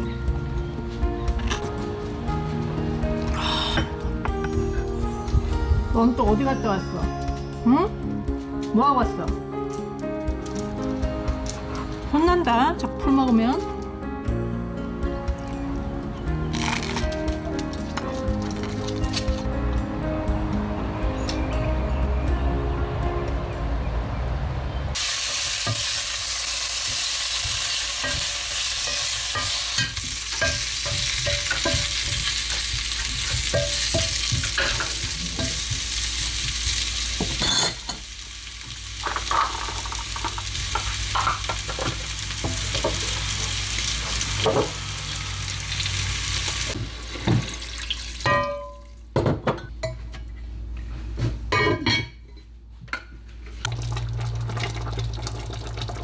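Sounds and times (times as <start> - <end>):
meat sizzling in a pot: 25.0 - 48.3
metal tongs clinking on pot: 28.0 - 35.7, 37.4 - 37.9.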